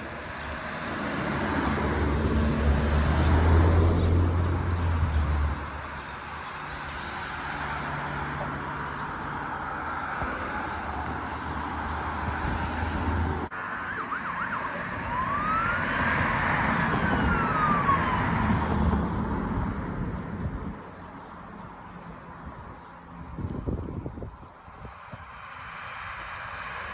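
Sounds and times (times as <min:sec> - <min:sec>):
vehicle engine and road noise: 0:00.0 - 0:26.9
emergency vehicle siren: 0:13.5 - 0:19.5.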